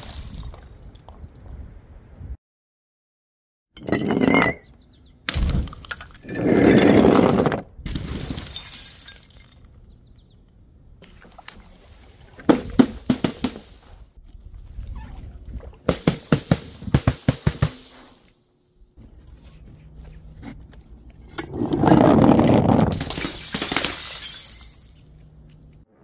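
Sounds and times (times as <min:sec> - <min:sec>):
glass pieces clinking: 0:03.8 - 0:04.7, 0:05.6 - 0:06.4, 0:08.4 - 0:09.7, 0:22.9 - 0:25.3
glass smashing: 0:05.3 - 0:06.3, 0:07.9 - 0:09.7, 0:22.9 - 0:25.2.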